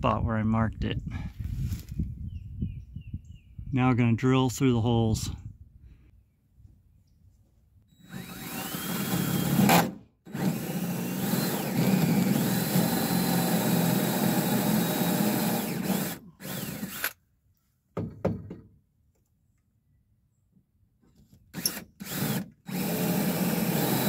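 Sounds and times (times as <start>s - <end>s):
cordless drill whining: 7.9s - 17.2s, 21.5s - 24.0s.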